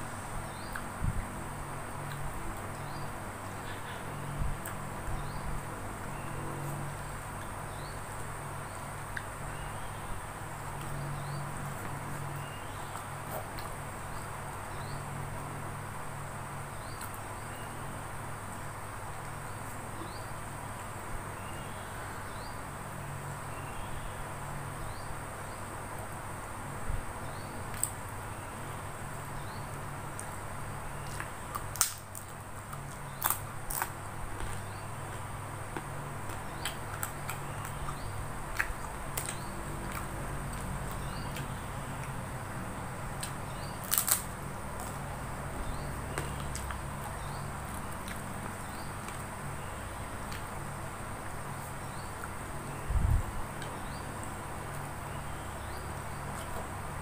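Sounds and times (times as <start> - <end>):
cracker crunching: 31.0 - 42.2, 43.1 - 49.3.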